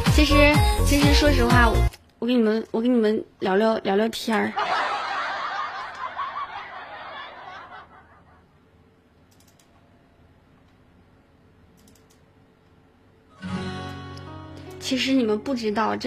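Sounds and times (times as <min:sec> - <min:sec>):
faint clicks: 0:09.2 - 0:09.9, 0:11.8 - 0:12.8.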